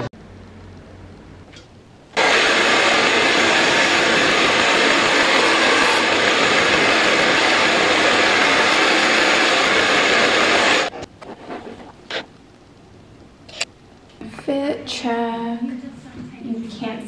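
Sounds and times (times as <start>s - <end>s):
hair dryer blowing: 2.2s - 10.9s.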